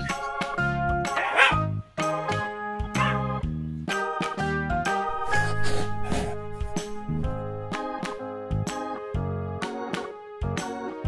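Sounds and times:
dog bark sound effect: 1.1 - 1.7, 2.9 - 3.3
jingly children's music: 1.8 - 11.0.

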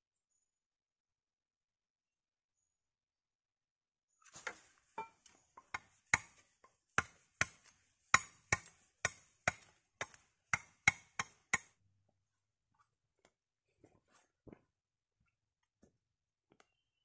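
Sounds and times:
blade chopping bamboo: 5.6 - 11.8.

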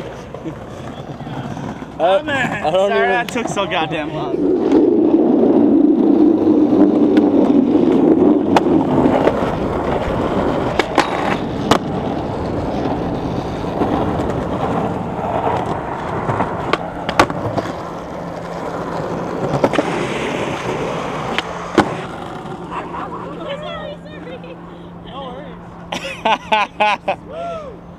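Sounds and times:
skateboard wheels rolling on concrete: 0.0 - 27.9
skateboard clacks: 6.4 - 23.4.

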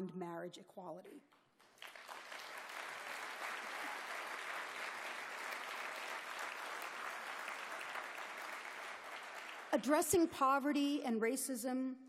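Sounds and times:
audience applauding: 1.6 - 9.9.

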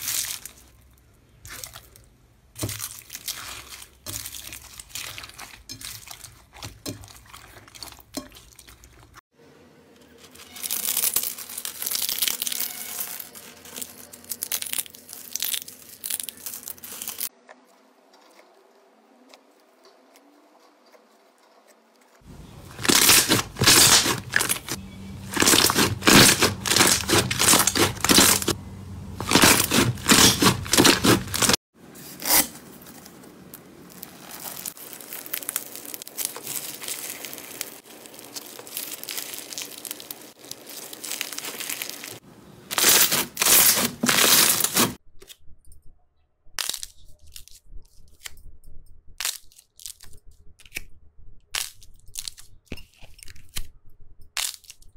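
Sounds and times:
foam beads crunching: 0.0 - 0.8, 2.6 - 6.5, 10.1 - 17.3, 22.2 - 28.6, 29.2 - 45.0
slime crackling and popping: 10.5 - 17.3, 22.7 - 28.6, 29.2 - 31.6, 33.5 - 44.9.

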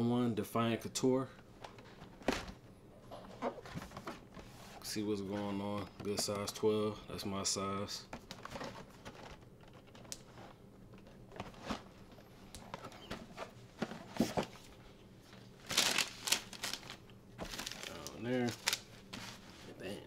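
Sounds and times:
paper rustling: 15.6 - 19.8.

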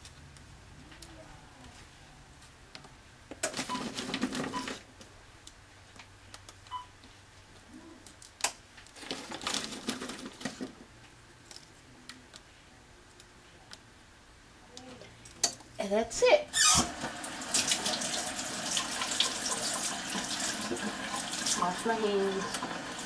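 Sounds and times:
cookies crumbling crackle: 8.0 - 10.8.

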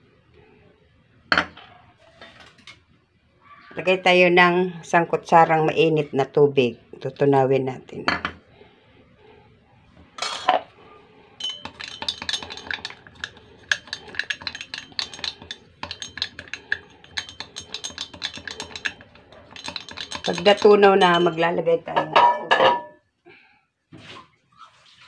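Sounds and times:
spoon clinking in glass mug: 11.4 - 21.4.

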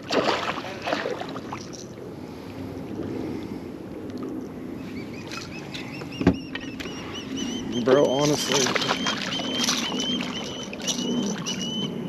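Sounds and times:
wind and water noise: 0.0 - 12.0
bird chirping: 4.9 - 12.0.

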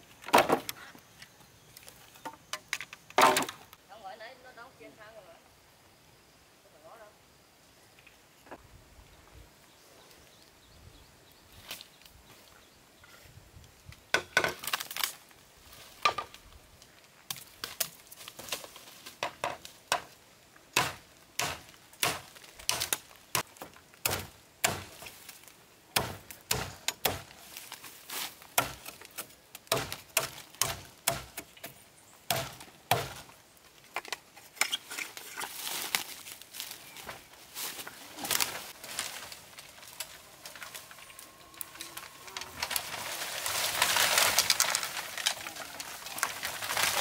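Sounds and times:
machete chopping bamboo: 20.8 - 25.1, 26.0 - 27.4, 28.6 - 33.3.

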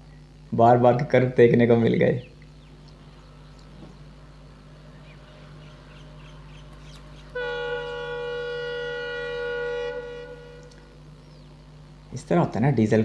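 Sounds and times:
low steady background noise: 0.0 - 13.0
locomotive air horn blast: 7.3 - 11.0.

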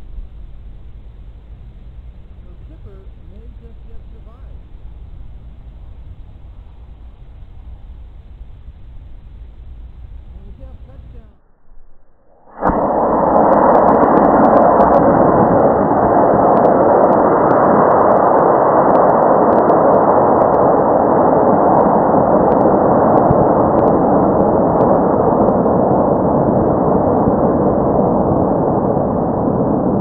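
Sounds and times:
faint crackles: 12.6 - 30.0.

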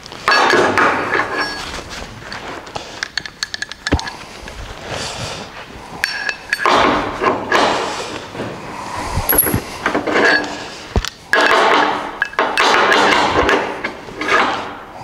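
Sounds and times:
metallic clinks on steel: 9.3 - 9.6.

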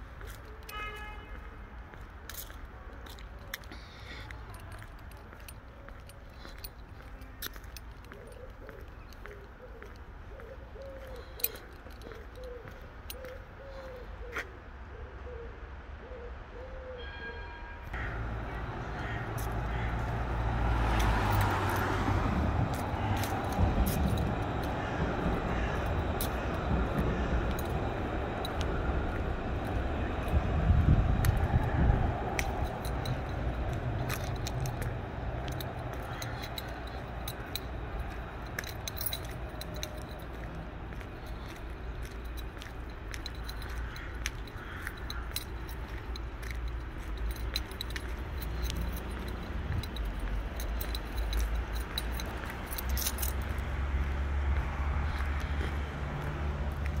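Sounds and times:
street hum: 0.0 - 57.0
tram passing rumble: 17.1 - 57.0
steady low rumble: 22.3 - 36.1
small metal pieces jingling: 32.4 - 53.6.

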